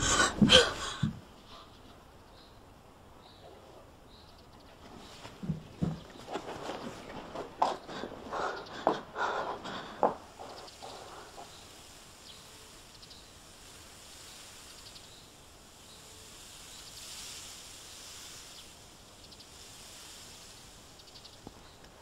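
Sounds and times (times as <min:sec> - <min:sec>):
faint steady hiss: 0:00.0 - 0:22.0
footstep-like knocks: 0:04.8 - 0:11.5
insects chirping in trills: 0:05.8 - 0:22.0.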